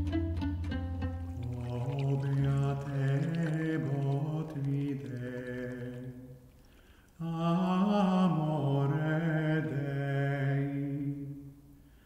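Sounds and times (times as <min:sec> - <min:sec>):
man singing plainchant: 0:01.5 - 0:06.4, 0:07.2 - 0:11.4.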